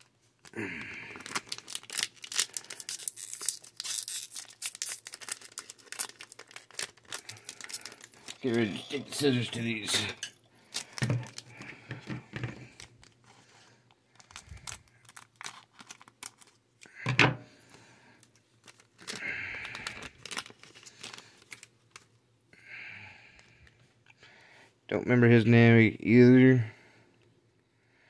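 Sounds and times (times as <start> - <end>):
foil wrappers crinkling: 0.0 - 17.0, 18.2 - 22.1.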